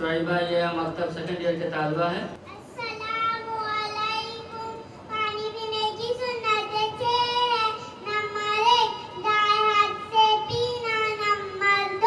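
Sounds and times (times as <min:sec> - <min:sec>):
girl chanting: 0:02.7 - 0:12.0.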